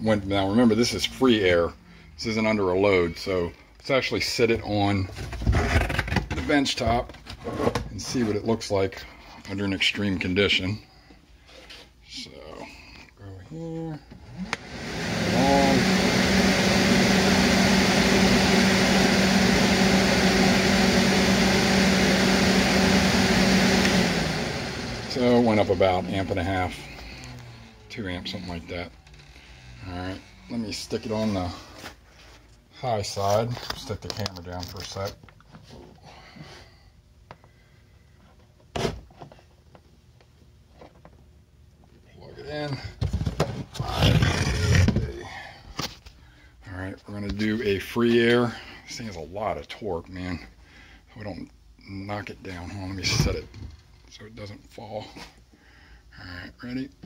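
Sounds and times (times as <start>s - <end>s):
electric radiator fan running: 14.5s - 29.6s.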